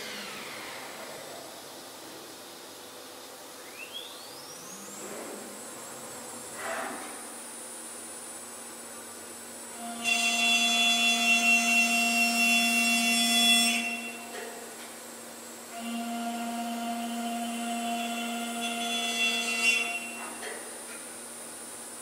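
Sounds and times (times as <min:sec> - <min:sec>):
router spindle cutting wood: 0:00.0 - 0:01.1.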